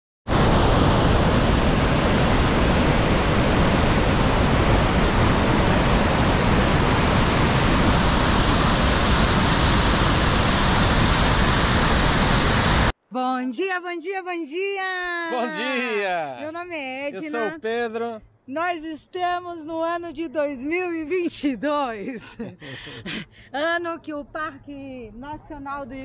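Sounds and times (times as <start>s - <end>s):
large waterfall rushing: 0.3s - 12.9s.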